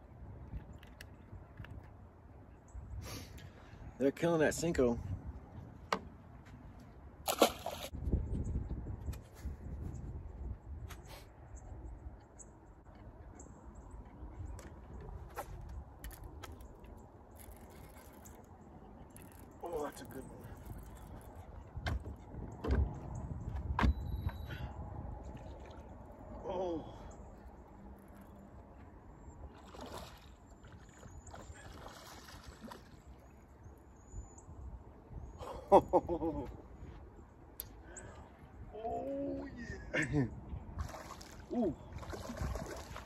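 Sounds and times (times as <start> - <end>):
wind rumbling on microphone: 4.6 - 5.8, 7.0 - 26.5, 27.3 - 43.0
water splashing and lapping: 7.2 - 8.0, 25.2 - 26.4, 29.4 - 33.5, 40.7 - 43.0
fish splashing: 7.3 - 7.9.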